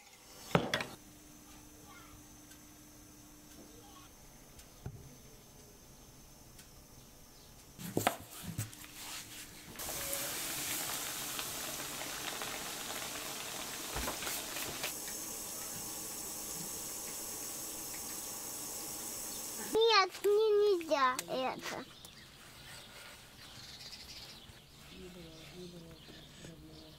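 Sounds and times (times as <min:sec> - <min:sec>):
dough sizzling in hot oil: 0:09.0 - 0:19.9.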